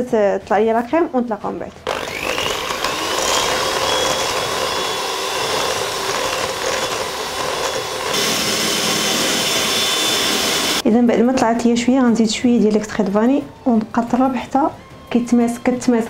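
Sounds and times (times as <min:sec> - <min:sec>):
electric hand mixer whipping cream: 0:01.8 - 0:10.8.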